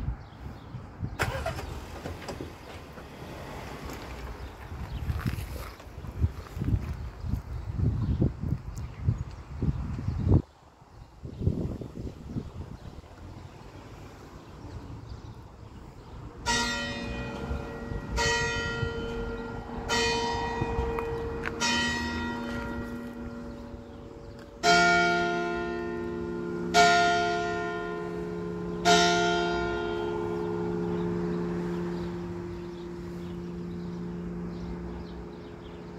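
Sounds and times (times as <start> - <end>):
deep church bell tolling: 16.4 - 35.9
lighter church bell strokes: 16.4 - 35.9.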